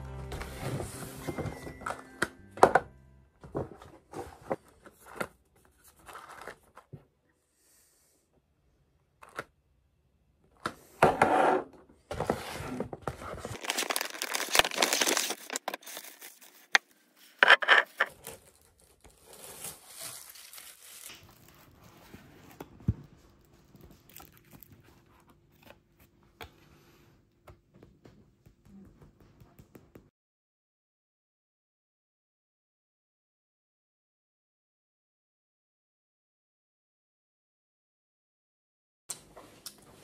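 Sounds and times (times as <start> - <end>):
wrapping paper rustling and tearing: 13.1 - 22.5.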